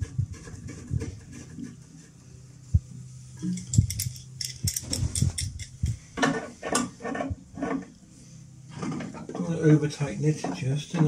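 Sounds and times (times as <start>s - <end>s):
low hum: 2.2s - 6.2s.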